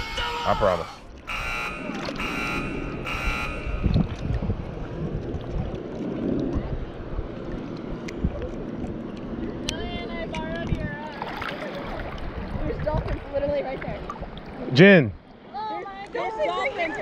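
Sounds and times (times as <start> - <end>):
wind rumbling on microphone: 1.2 - 14.6
short buzzing electronic tones: 1.3 - 4.0.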